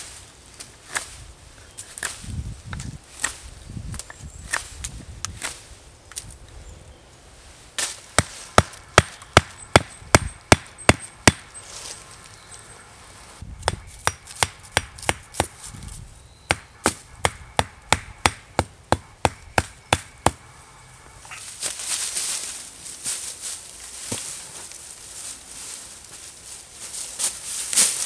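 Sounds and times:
hatchet hammering wooden stake: 8.1 - 11.5, 13.6 - 15.6, 16.4 - 20.4.

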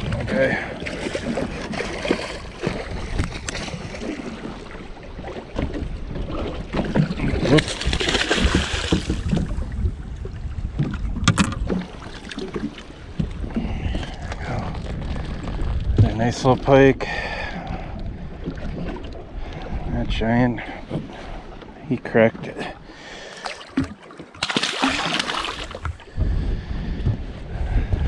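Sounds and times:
wind rumble on microphone: 0.0 - 21.6, 25.6 - 28.0
fish thrashing and splashing: 0.8 - 4.6, 6.4 - 9.6, 23.2 - 26.1.

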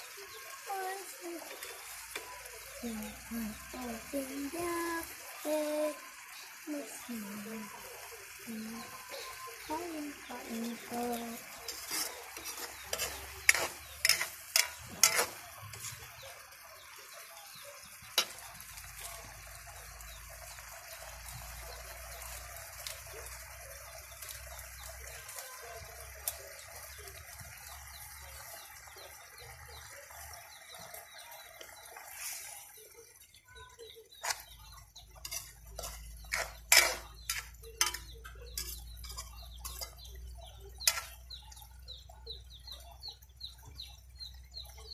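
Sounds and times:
food simmering hiss: 0.0 - 44.8
metal spoon clinking in pan: 10.7 - 16.4, 34.2 - 41.5.

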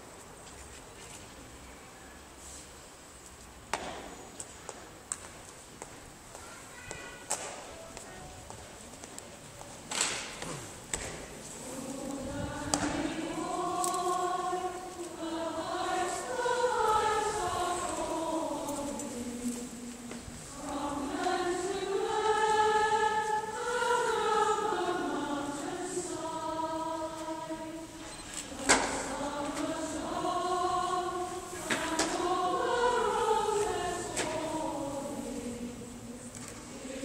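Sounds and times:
choir singing slowly: 10.0 - 37.0.

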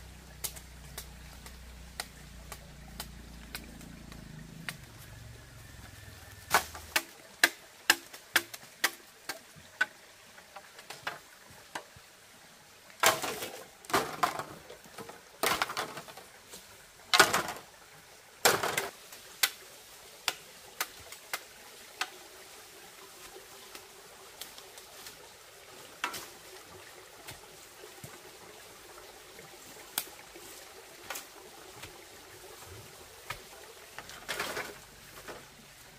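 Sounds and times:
dry bamboo clicking and crunching: 0.2 - 11.9, 13.0 - 17.7, 18.4 - 22.2, 26.0 - 28.2, 29.8 - 35.9.

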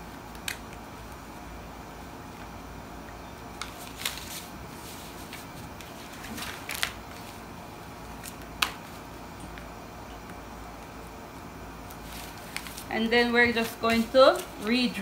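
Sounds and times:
paper rustle: 3.6 - 9.0, 11.8 - 15.0.

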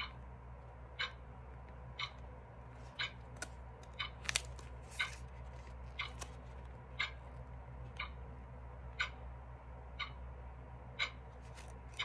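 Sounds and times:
page rustling: 4.2 - 6.7, 11.4 - 12.0
paper page crackling: 4.2 - 6.7, 11.4 - 12.0.

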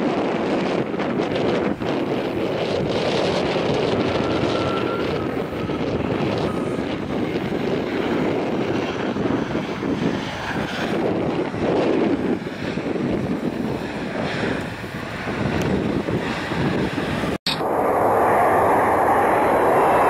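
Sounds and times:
jet engines rushing: 0.0 - 20.0
faint high whine: 4.0 - 6.8, 17.5 - 20.0.

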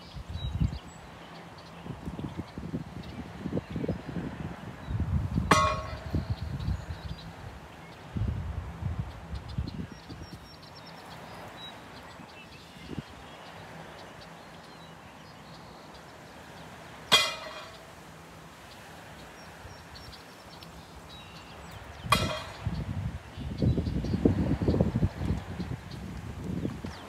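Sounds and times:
steady low hiss: 0.0 - 27.0
sharp ringing sound: 5.5 - 6.3.

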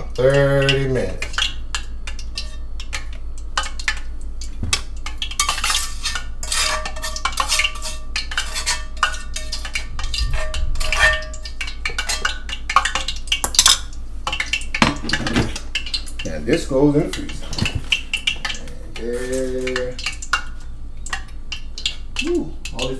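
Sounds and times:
utensil scraping a frying pan: 5.2 - 12.6.

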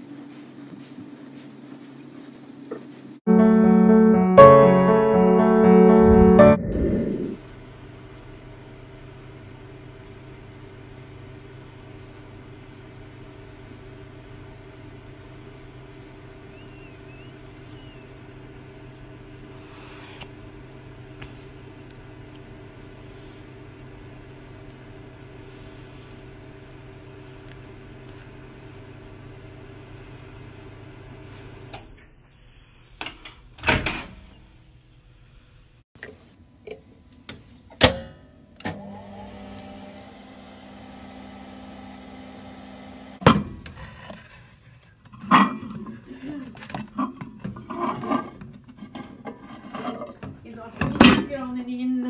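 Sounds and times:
microwave oven humming: 7.4 - 34.9, 37.7 - 43.8.

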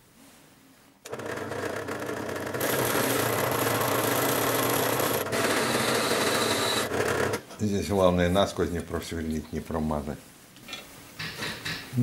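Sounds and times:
drill press motor humming: 1.0 - 7.4
high whine of drilling steel: 2.6 - 7.3.

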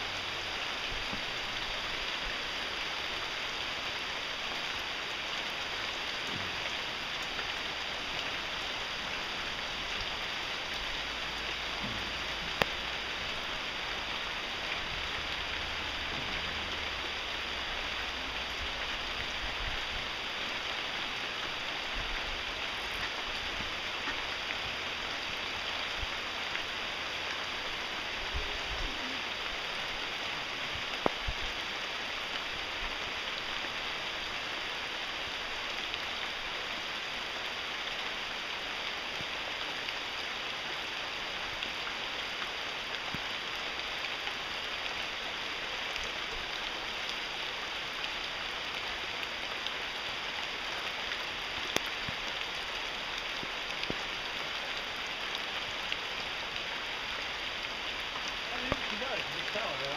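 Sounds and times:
rain on foliage: 0.0 - 59.9.

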